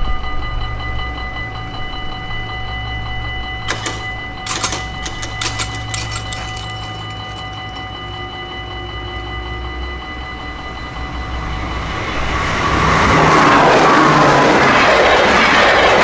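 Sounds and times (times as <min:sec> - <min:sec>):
level-crossing warning bell: 0:00.0 - 0:13.8
sharp clattering knocks: 0:03.7 - 0:08.1.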